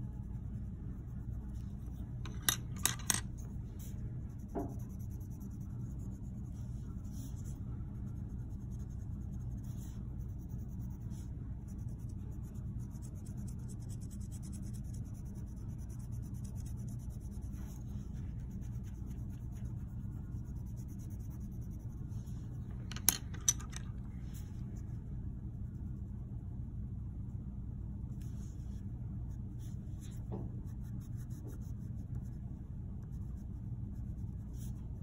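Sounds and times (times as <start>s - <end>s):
pencil scratching on paper: 3.8s - 22.4s, 28.2s - 32.4s.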